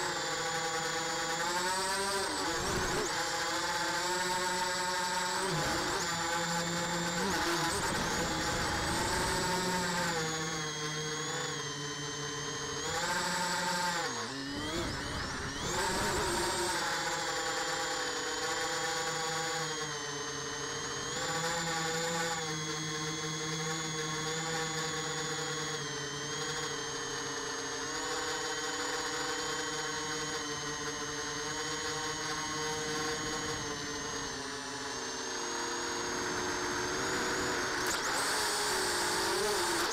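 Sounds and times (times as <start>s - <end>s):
drone motors whining: 0.0s - 39.9s.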